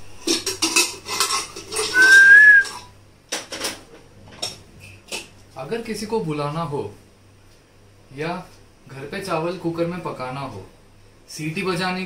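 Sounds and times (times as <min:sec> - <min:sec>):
metal utensils clattering: 0:00.2 - 0:02.4
short rising whistle: 0:01.9 - 0:02.8.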